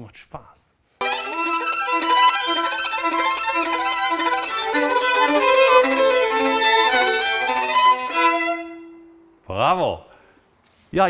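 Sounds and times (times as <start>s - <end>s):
two violins playing fast: 1.0s - 9.1s.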